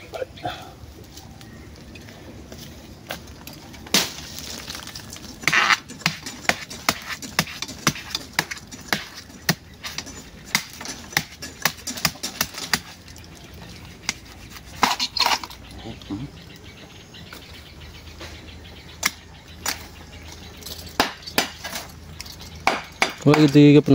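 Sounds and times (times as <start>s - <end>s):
knife chopping bamboo: 5.4s - 13.0s, 22.6s - 23.6s.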